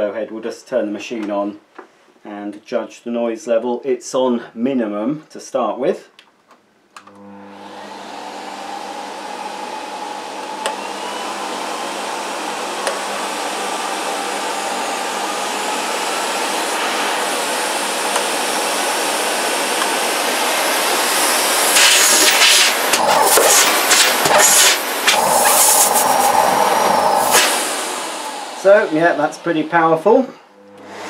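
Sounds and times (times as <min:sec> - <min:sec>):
vacuum cleaner motor whine: 0:07.0 - 0:31.0.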